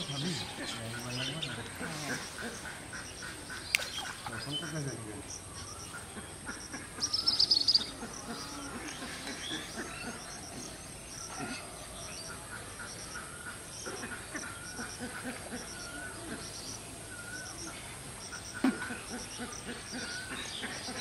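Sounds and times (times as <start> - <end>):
birds calling: 0.0 - 21.0
high bird chirps: 3.0 - 8.7.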